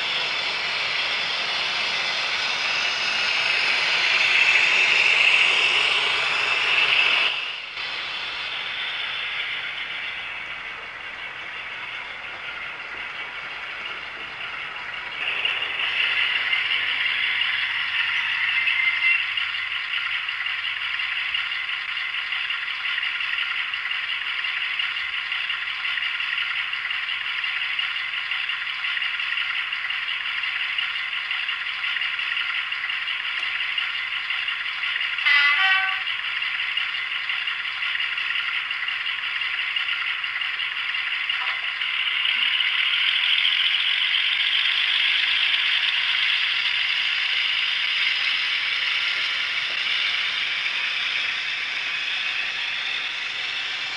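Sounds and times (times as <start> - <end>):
tinny diesel engine sound: 0.0 - 53.9
short horn blast: 35.2 - 36.1.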